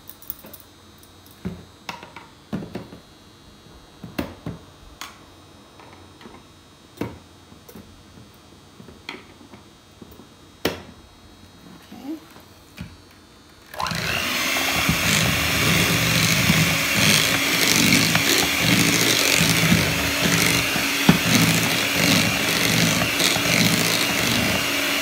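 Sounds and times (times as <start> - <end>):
mixer beaters clicking: 13.8 - 25.0.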